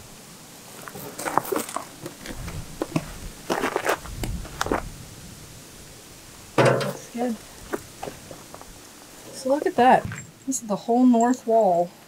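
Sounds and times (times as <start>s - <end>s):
footsteps crunching on concrete: 0.7s - 4.9s, 7.6s - 8.8s
dull thuds: 6.6s - 7.1s, 9.9s - 10.5s.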